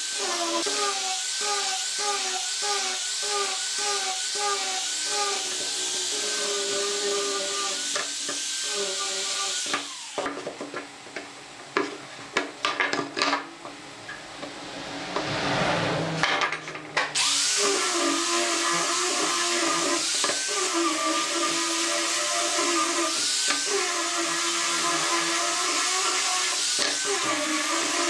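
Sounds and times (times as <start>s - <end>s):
angle grinder sanding wood: 0.0s - 10.3s, 17.1s - 28.0s.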